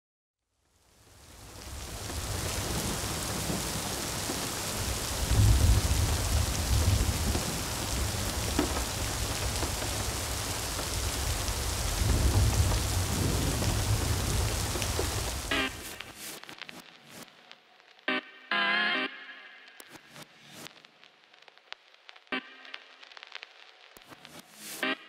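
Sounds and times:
steady rain: 0:00.6 - 0:18.2, 0:19.9 - 0:25.0
thunder rumbling: 0:01.2 - 0:16.0.

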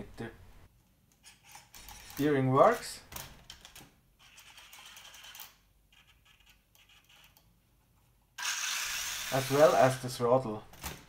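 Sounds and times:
electric motor spinning wheels: 0:08.4 - 0:09.8
servo whirring and clicking: 0:08.4 - 0:09.8.

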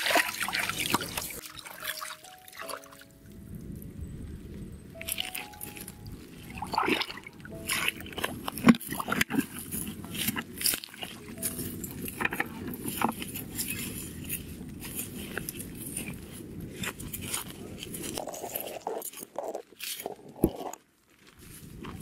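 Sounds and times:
low rumble: 0:03.2 - 0:10.6
footsteps crunching on dry leaves: 0:21.0 - 0:22.0.

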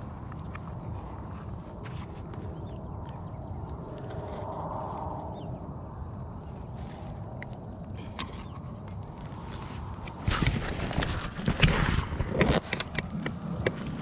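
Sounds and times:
low steady rumble: 0:00.0 - 0:14.0
backpack scraping and knocking: 0:09.6 - 0:13.0.

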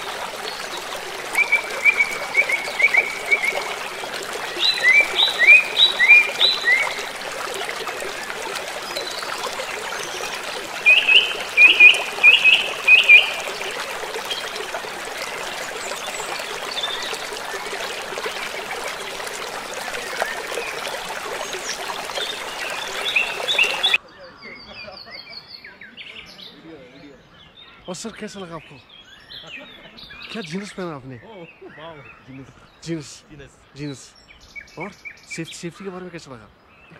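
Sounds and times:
river water rushing over rocks: 0:00.0 - 0:24.0.

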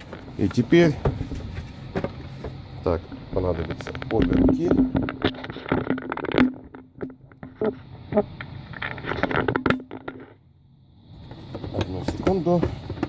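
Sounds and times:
plastic housing clicking and scraping: 0:03.4 - 0:10.4.

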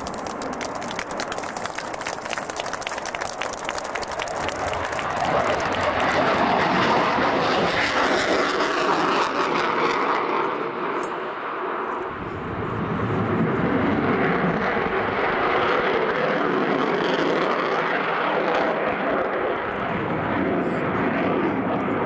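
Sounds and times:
jet engines roaring overhead: 0:00.0 - 0:22.0.

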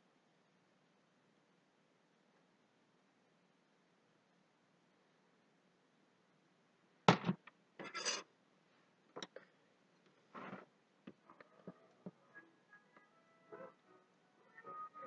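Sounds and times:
rubbing and scraping: 0:07.8 - 0:08.3, 0:10.3 - 0:10.7.

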